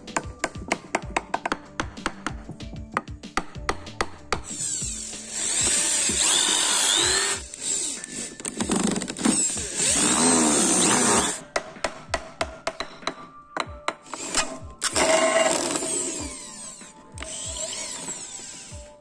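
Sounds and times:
electric drill boring into wood: 4.5 - 11.4, 14.2 - 19.0.

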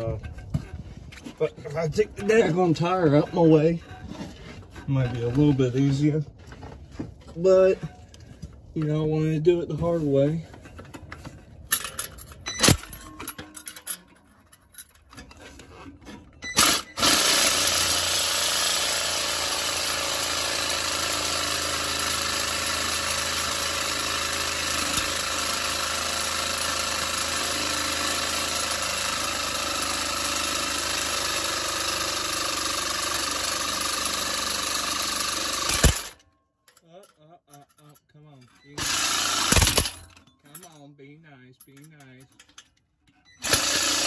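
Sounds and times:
reciprocating saw cutting steel: 16.6 - 36.2, 38.8 - 40.0, 43.4 - 44.0.

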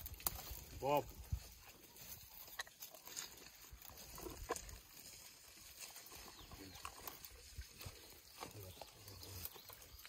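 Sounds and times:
twigs and branches snapping: 0.0 - 0.8.

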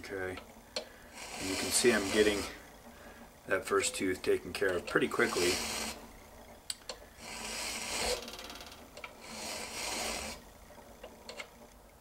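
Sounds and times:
file rasping on steel: 1.2 - 2.6, 5.2 - 6.0, 7.2 - 8.2, 9.2 - 10.4.

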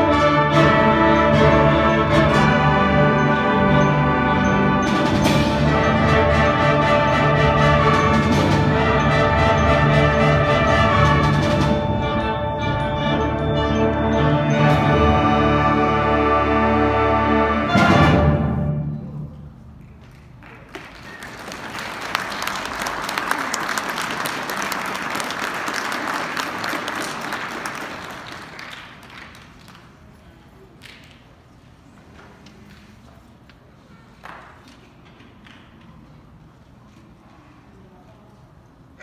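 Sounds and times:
audience applauding: 20.0 - 30.1.

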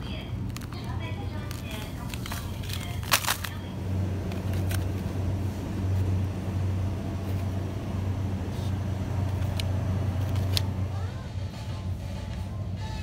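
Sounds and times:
machinery hum: 0.0 - 13.0
plastic packaging clicks: 0.4 - 3.6.

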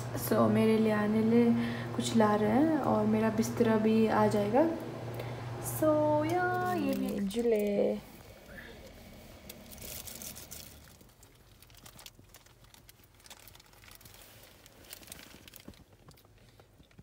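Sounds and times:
plastic bag crinkling: 6.2 - 17.0.

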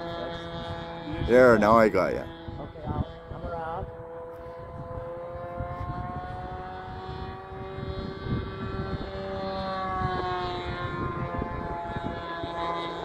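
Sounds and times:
model airplane motor droning: 0.0 - 13.0.

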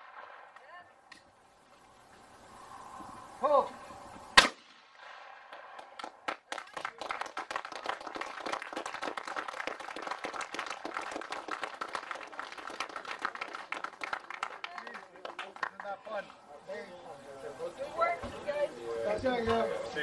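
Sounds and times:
shotgun report: 4.4 - 5.8
people clapping: 5.8 - 16.4.

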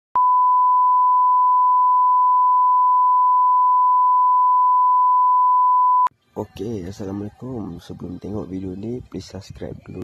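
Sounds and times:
steady test tone beep: 0.2 - 6.1.

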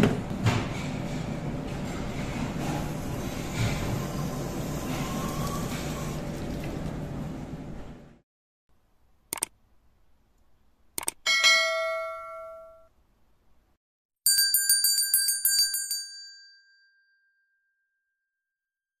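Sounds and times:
short clicks: 9.3 - 9.6, 11.0 - 11.2
bright ringing ding: 11.3 - 12.9
jingling bell ring: 14.3 - 17.8.

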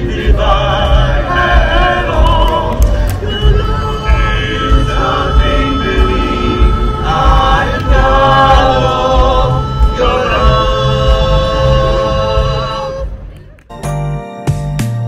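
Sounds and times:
men singing a cappella harmony: 0.0 - 13.1.

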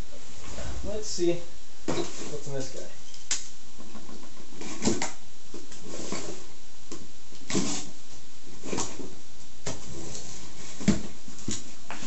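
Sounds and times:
box cutter slicing tape: 7.5 - 7.9.

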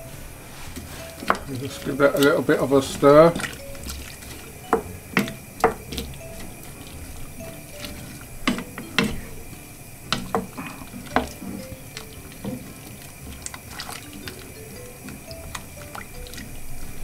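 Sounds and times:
liquid sloshing in pot: 0.0 - 17.0
spoon knocking against pot: 3.3 - 9.5, 10.1 - 12.8.

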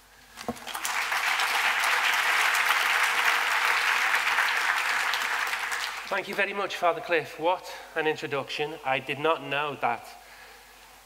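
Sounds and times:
audience applauding: 0.5 - 6.5.

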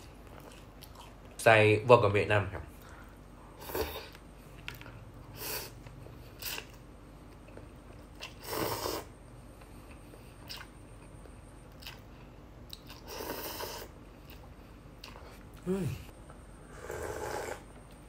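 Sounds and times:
person chewing: 0.0 - 1.4, 3.6 - 15.8
person slurping noodles: 8.2 - 9.1, 12.9 - 14.0, 16.7 - 17.7.

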